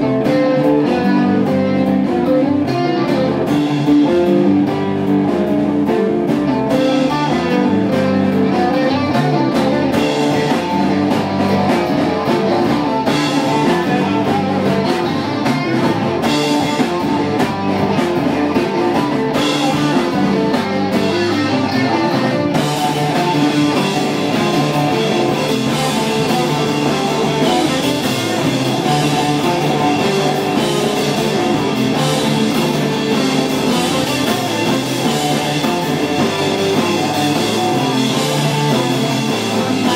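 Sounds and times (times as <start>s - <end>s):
drum kit: 0.0s - 39.9s
electric bass: 0.0s - 39.9s
electric guitars: 0.0s - 39.9s.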